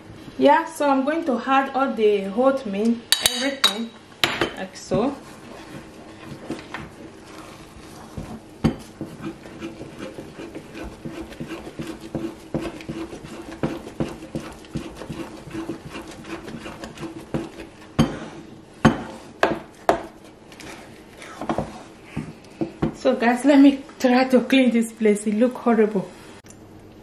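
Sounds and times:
spoon scraping and knocking pan: 3.2s - 23.1s
spoon stirring thick dough: 4.5s - 23.2s.

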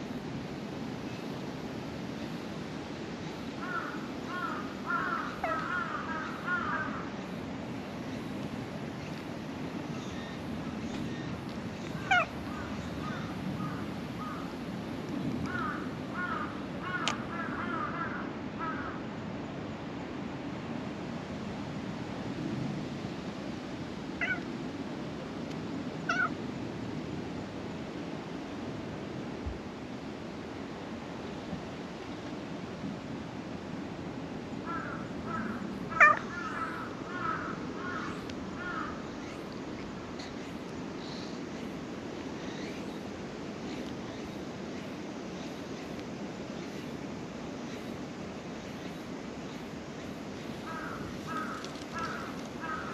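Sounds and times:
crows cawing: 3.6s - 7.1s, 12.0s - 14.5s, 15.5s - 19.0s, 24.2s - 24.4s, 26.1s - 26.4s, 34.6s - 39.4s, 50.6s - 52.9s.

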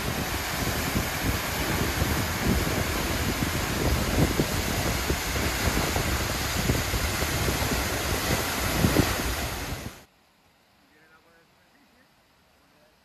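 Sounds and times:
waterfall rushing: 0.0s - 10.1s
wind buffeting microphone: 0.0s - 10.1s.

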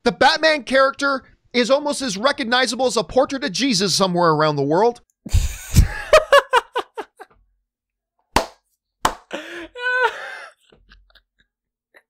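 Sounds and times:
man laughing breathlessly: 5.3s - 7.3s, 9.3s - 11.2s.

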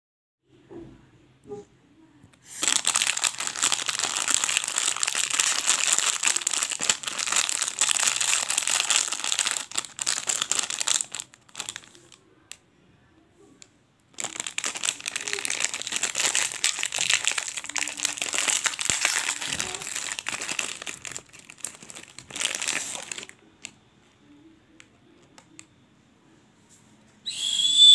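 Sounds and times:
plastic packet crinkling: 2.5s - 12.2s, 14.1s - 23.8s.

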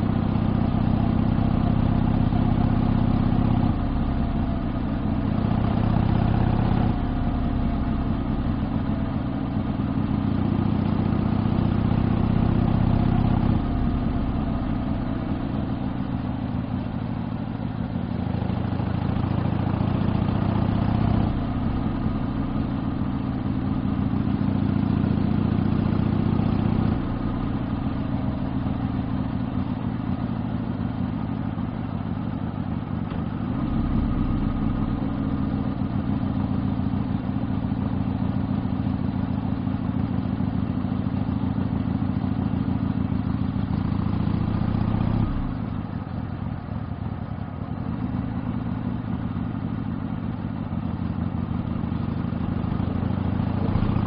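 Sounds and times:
motorcycle exhaust while riding: 0.0s - 54.0s.

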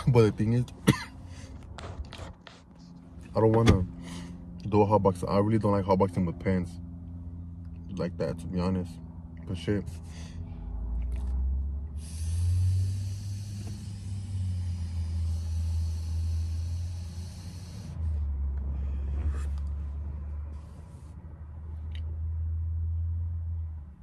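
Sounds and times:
low rumble inside car: 0.0s - 24.0s
breathy exhale: 10.0s - 10.8s, 11.9s - 19.4s
hissing vape inhale: 11.9s - 19.5s.

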